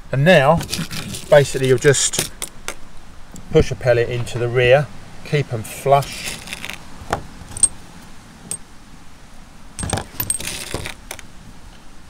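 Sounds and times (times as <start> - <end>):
metal cartridge cases clinking: 9.8 - 11.2.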